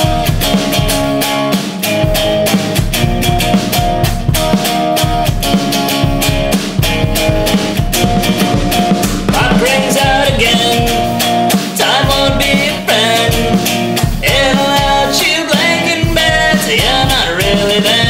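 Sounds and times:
drum kit: 0:00.0 - 0:18.0
electric guitar: 0:00.0 - 0:18.0
person singing: 0:08.4 - 0:18.0.

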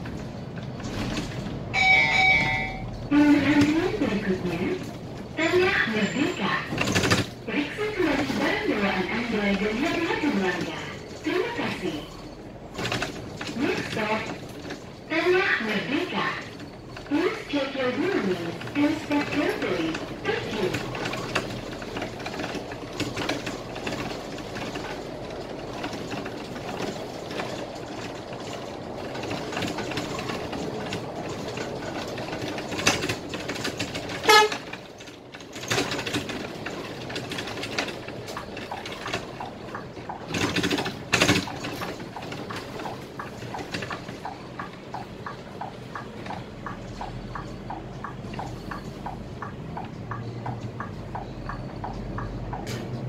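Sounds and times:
bus engine and road noise: 0:00.0 - 0:53.0
faint rapid ticking: 0:16.4 - 0:53.0
bus horn blast: 0:34.1 - 0:34.8.

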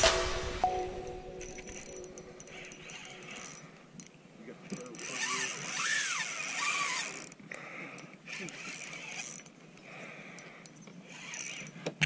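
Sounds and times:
fishing reel gears whirring: 0:02.4 - 0:03.8, 0:04.7 - 0:09.6, 0:10.4 - 0:11.9.

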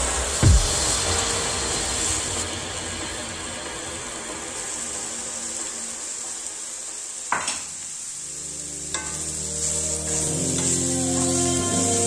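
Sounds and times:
vegetables sizzling in a skillet: 0:00.0 - 0:12.0
sharp knock: 0:00.3 - 0:04.4
background music: 0:08.2 - 0:12.0.

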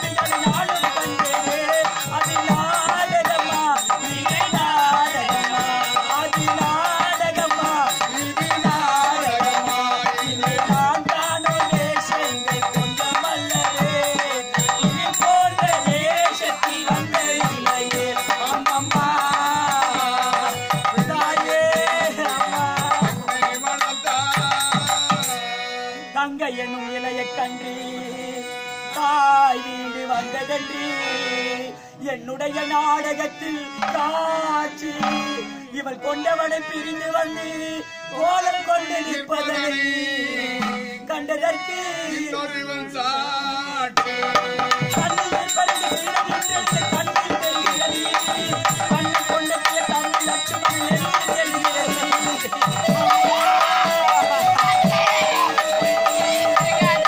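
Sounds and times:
wavering melody: 0:44.2 - 0:57.0.

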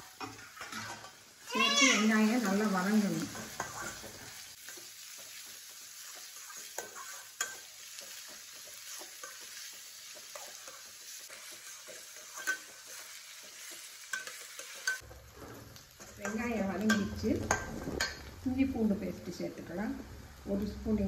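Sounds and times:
onions sizzling in oil: 0:00.0 - 0:21.0
metal spatula scraping pan: 0:00.2 - 0:01.2, 0:02.3 - 0:05.4, 0:06.0 - 0:18.3
spatula clinking against pan: 0:06.0 - 0:15.0.

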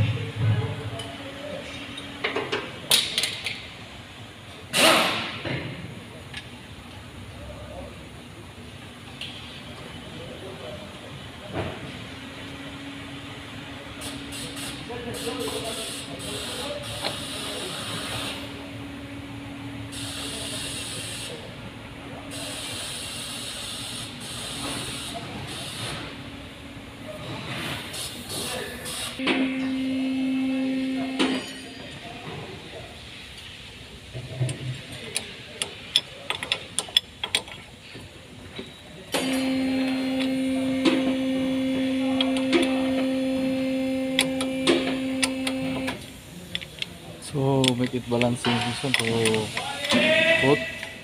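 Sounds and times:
electric machine hum: 0:16.6 - 0:24.6, 0:28.8 - 0:31.9, 0:39.1 - 0:46.5
low even hum: 0:29.2 - 0:34.0
sharp metallic clicks and taps: 0:47.6 - 0:50.0.

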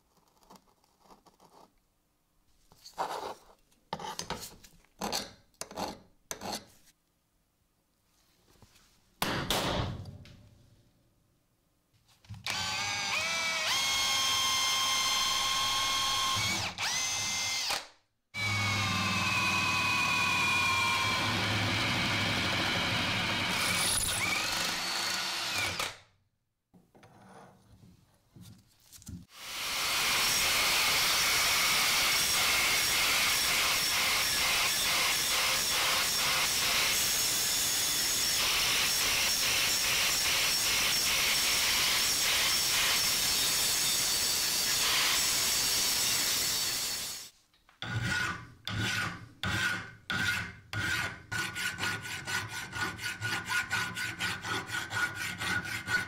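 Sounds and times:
electric drill boring steel: 0:12.5 - 0:26.0, 0:29.4 - 0:47.3.

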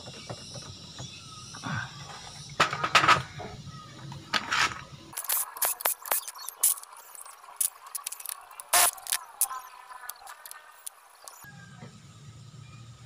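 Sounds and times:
quick clicking: 0:05.1 - 0:11.4
electric drill bursts: 0:05.2 - 0:11.4.

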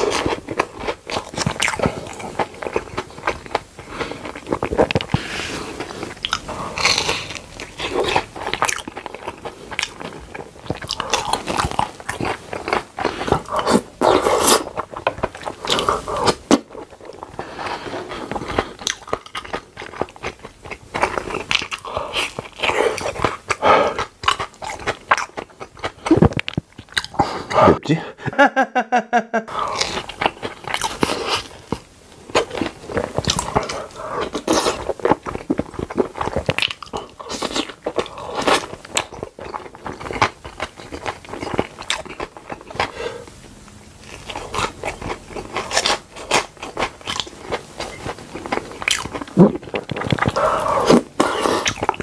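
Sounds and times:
crunchy bites and chewing: 0:05.8 - 0:17.3, 0:44.0 - 0:52.0
wet mouth sounds: 0:47.9 - 0:52.0.

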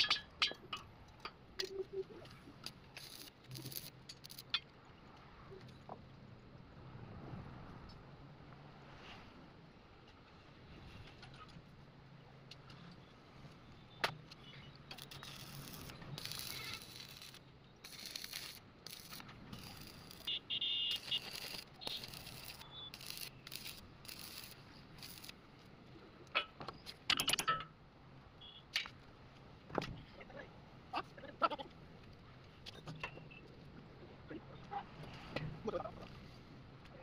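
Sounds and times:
metal tools clinking and rattling: 0:00.0 - 0:01.8.

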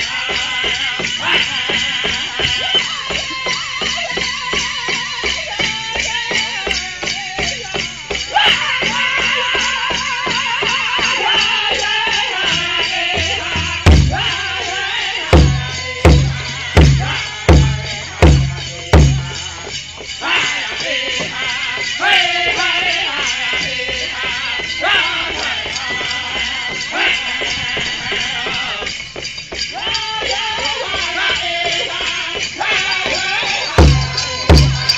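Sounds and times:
bells jingling: 0:00.0 - 0:34.9
group singing: 0:00.0 - 0:34.9
steady big drum beat: 0:00.4 - 0:21.6, 0:29.7 - 0:34.9
loud heavy drum strikes: 0:13.2 - 0:14.4, 0:15.4 - 0:19.4.

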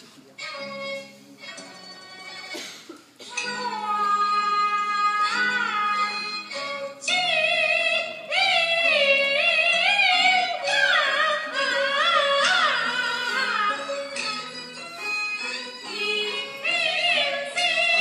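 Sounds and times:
opera singing in high voice: 0:03.3 - 0:14.5, 0:15.8 - 0:18.0.

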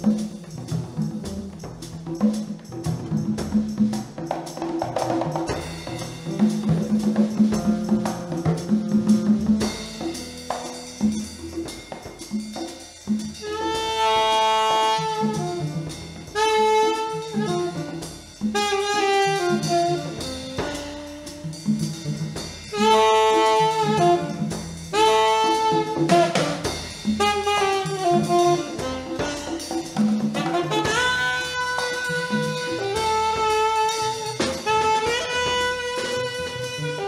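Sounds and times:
walking upright bass: 0:00.0 - 0:12.5, 0:13.2 - 0:37.0
drum kit: 0:00.0 - 0:37.0
alto saxophone phrases: 0:13.4 - 0:15.7, 0:16.4 - 0:18.0, 0:18.6 - 0:21.4, 0:22.8 - 0:26.6, 0:27.2 - 0:29.7, 0:30.4 - 0:37.0.

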